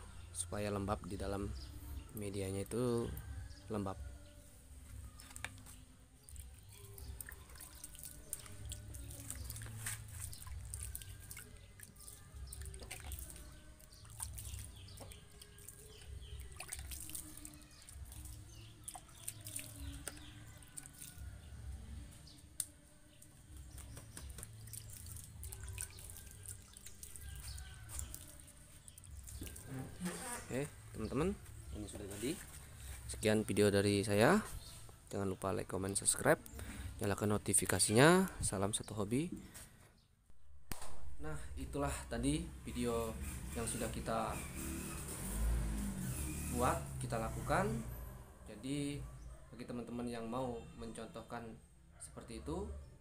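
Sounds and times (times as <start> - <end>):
water splashing onto soil: 6.2 - 21.2, 23.6 - 30.0.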